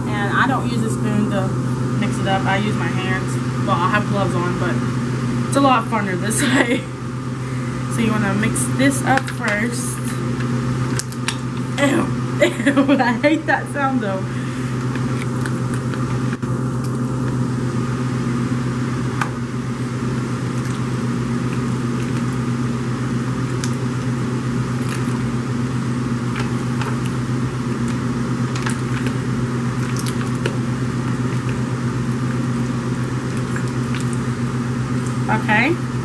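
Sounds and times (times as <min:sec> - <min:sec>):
steady low hum: 0:00.0 - 0:36.0
wet squelching of kneaded cheese: 0:23.3 - 0:25.4, 0:26.2 - 0:35.2.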